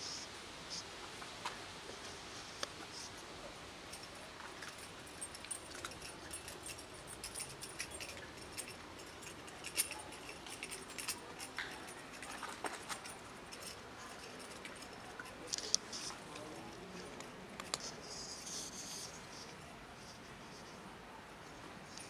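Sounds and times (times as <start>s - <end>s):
cats crunching dry food: 3.9s - 18.8s.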